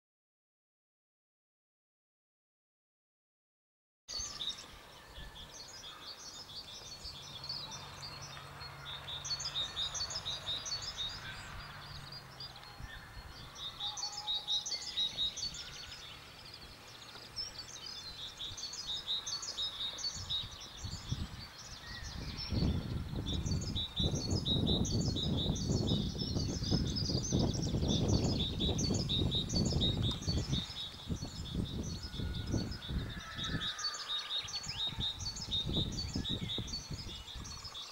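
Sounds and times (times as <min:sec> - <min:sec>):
small birds chirping chorus: 0:04.1 - 0:37.9
gusty low rumble: 0:20.2 - 0:33.6.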